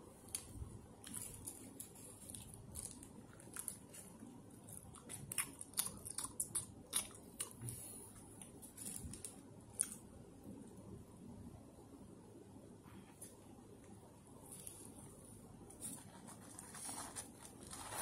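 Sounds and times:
person chewing with mouth clicks: 4.6s - 8.5s
paper wrapper crinkling: 15.8s - 18.0s.

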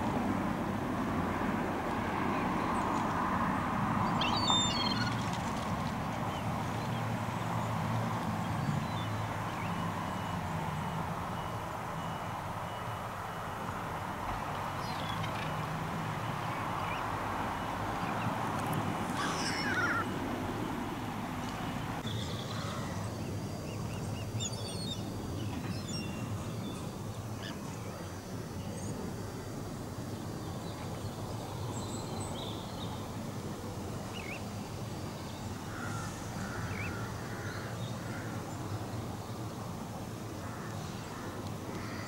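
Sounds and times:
birds calling: 4.0s - 5.4s, 17.9s - 20.1s, 21.5s - 28.0s, 35.4s - 38.8s, 40.4s - 42.0s.

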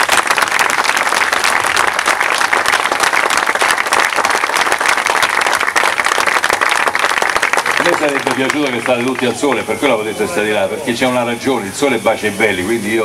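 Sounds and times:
crowd clapping: 0.0s - 10.2s.

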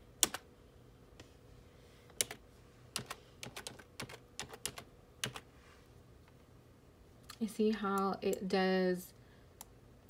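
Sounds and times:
computer keyboard typing: 0.2s - 0.4s, 2.2s - 2.4s, 3.0s - 5.5s.

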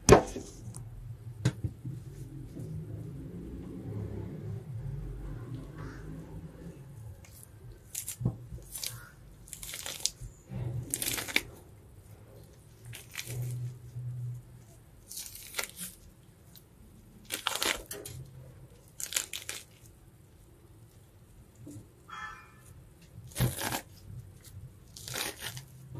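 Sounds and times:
membrane tearing off tripe: 7.2s - 11.6s, 15.0s - 16.6s, 17.2s - 19.9s, 23.2s - 25.9s.

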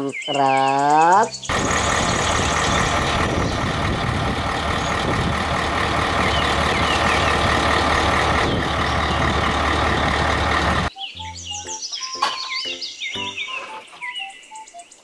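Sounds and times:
truck diesel engine running: 1.5s - 10.9s.

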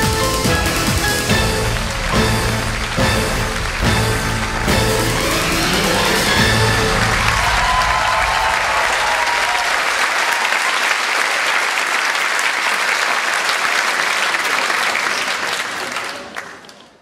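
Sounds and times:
music: 0.0s - 8.6s
audience applauding: 0.0s - 17.0s.

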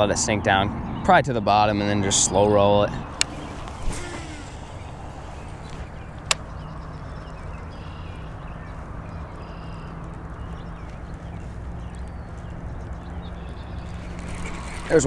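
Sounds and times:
faint bird chirps: 3.0s - 10.5s
fishing reel whirring: 3.2s - 6.4s, 13.8s - 15.0s.

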